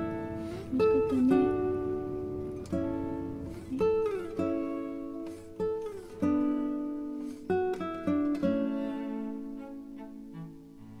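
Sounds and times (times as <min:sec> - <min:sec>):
plucked string instrument music: 0:00.0 - 0:11.0.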